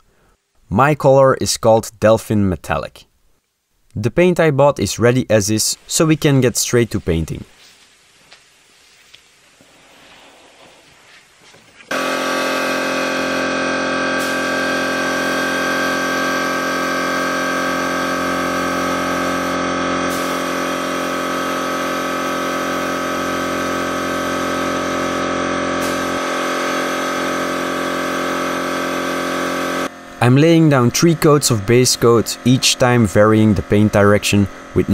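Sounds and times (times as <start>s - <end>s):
air compressor motor humming: 11.9s - 34.9s.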